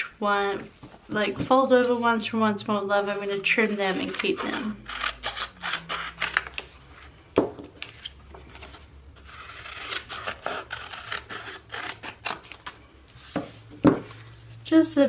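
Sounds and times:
paper cutting and rustling: 3.2 - 6.8, 7.8 - 13.4.

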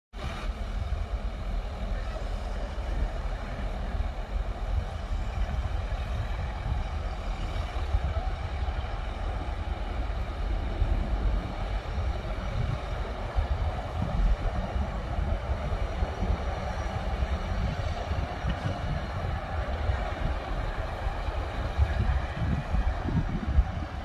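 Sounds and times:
heavy machinery diesel engine running: 0.2 - 24.0.

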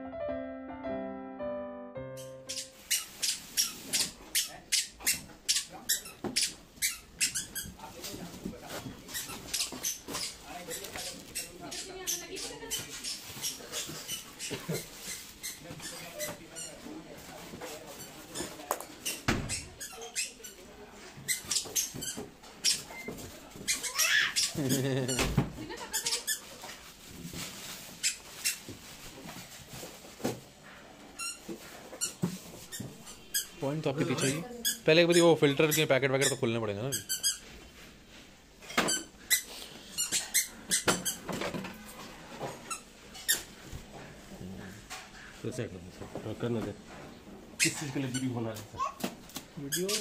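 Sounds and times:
plastic squeaking and clicking: 2.2 - 7.9, 49.7 - 50.0
plastic wrapping rustling: 2.4 - 4.6, 7.4 - 19.0, 22.8 - 30.6.

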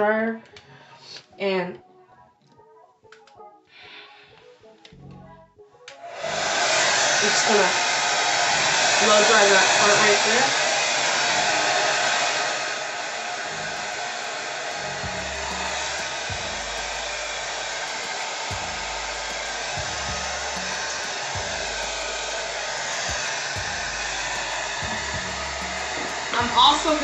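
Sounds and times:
hair dryer blowing: 6.0 - 27.0.

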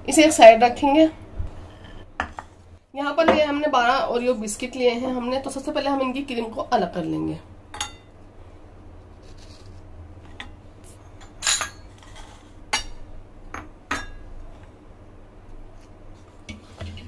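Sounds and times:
low steady hum: 0.0 - 17.0
knife clinking against ceramic bowls: 11.2 - 11.9.

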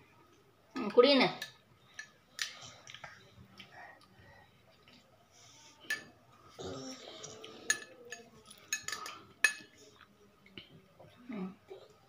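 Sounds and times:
metal spoon clinking a cup: 7.7 - 9.7.

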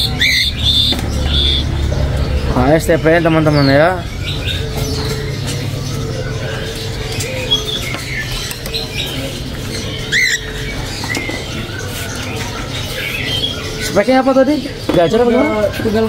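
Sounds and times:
songbirds chirping: 0.0 - 16.0.

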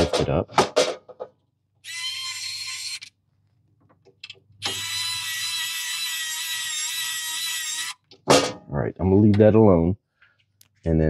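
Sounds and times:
electric screwdriver running: 4.6 - 8.0.

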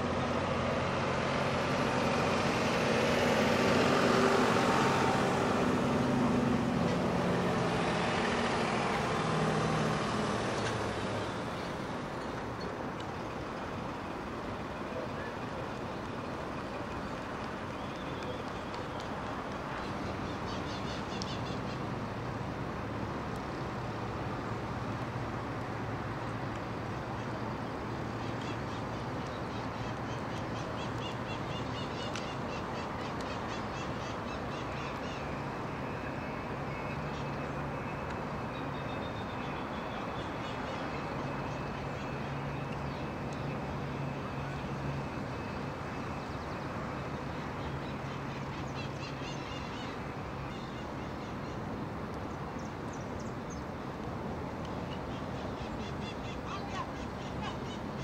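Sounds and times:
birds calling: 27.0 - 35.5, 54.7 - 58.0.

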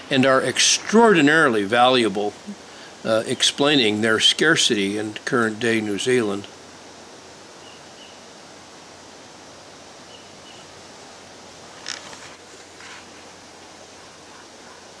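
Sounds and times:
steady hiss: 0.0 - 15.0
bird chirping: 7.6 - 8.2, 10.1 - 10.7.

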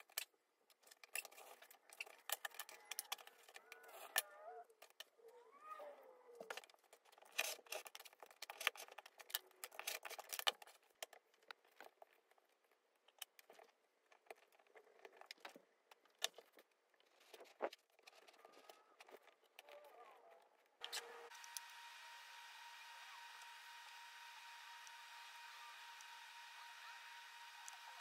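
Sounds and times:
rotary cutter cutting leather: 20.8 - 28.0.

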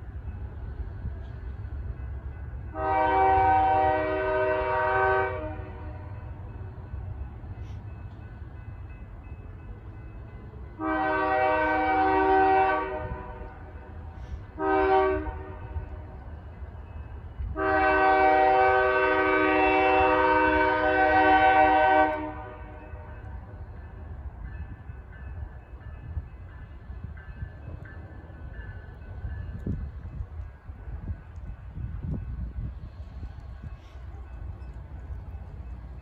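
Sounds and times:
freight train rumble: 0.0 - 36.0
train horn blasts: 2.7 - 6.2, 10.8 - 16.2, 17.4 - 23.2.

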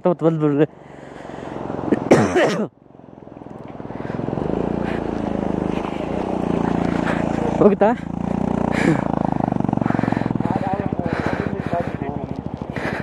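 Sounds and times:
vehicle engine under load: 2.8 - 13.0.

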